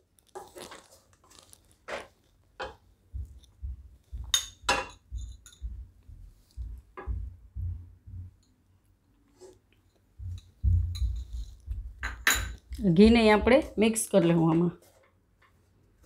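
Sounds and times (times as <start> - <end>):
utensils clinking against a pan: 4.3 - 5.6, 12.0 - 12.6.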